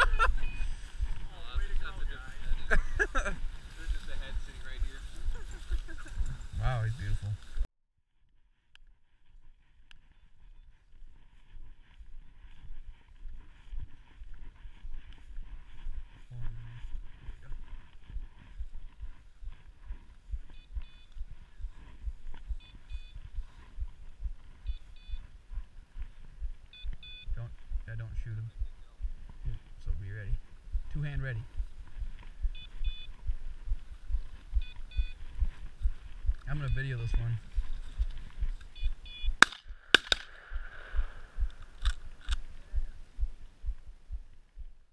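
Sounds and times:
high electronic double beep: 0:00.4 - 0:00.8, 0:32.5 - 0:33.2, 0:34.6 - 0:35.2, 0:38.8 - 0:39.4
walking footsteps thumping: 0:28.6 - 0:39.4
shotgun shots: 0:39.4 - 0:42.4.

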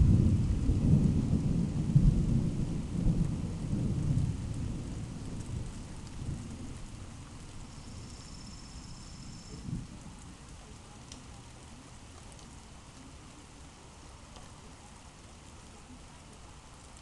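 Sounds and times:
thunder rumbling: 0:00.0 - 0:10.6
rain hissing: 0:00.0 - 0:17.0.

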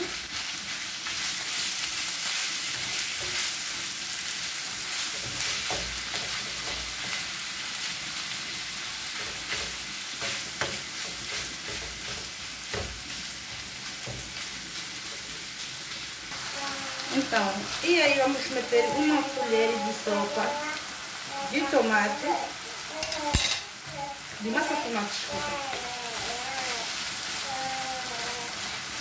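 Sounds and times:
meat sizzling in a frying pan: 0:00.0 - 0:29.0
wooden spoon scraping a pan: 0:09.0 - 0:15.6.

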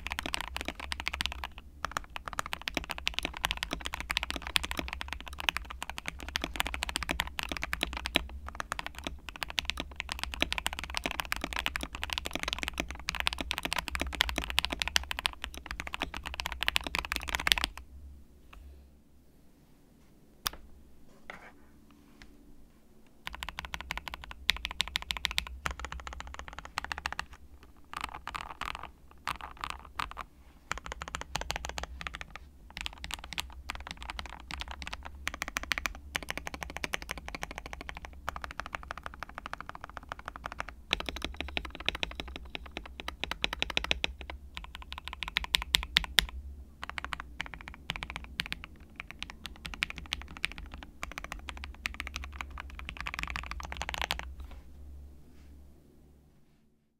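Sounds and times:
mechanical keyboard typing: 0:00.0 - 0:17.8, 0:23.2 - 0:54.3.

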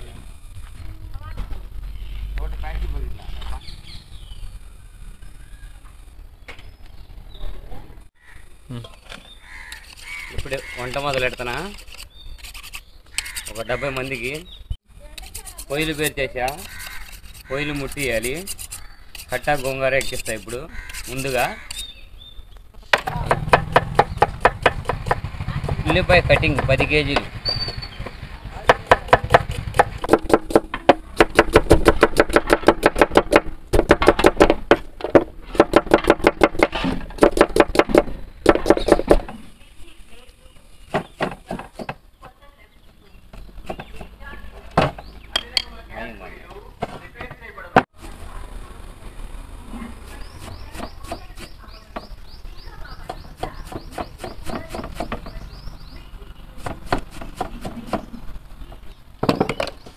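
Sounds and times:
knife chopping on cutting board: 0:23.0 - 0:27.3, 0:28.7 - 0:34.8, 0:56.6 - 0:58.1
high chirp: 0:27.4 - 0:28.5.

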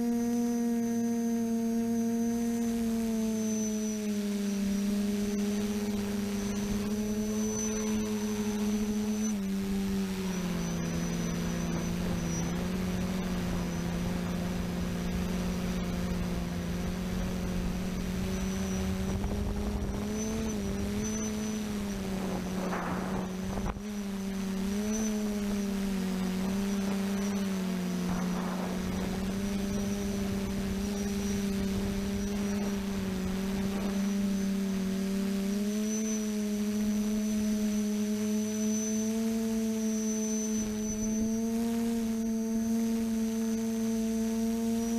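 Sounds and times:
quadcopter motors humming: 0:00.0 - 0:44.9
wind rumbling on microphone: 0:04.9 - 0:35.7.

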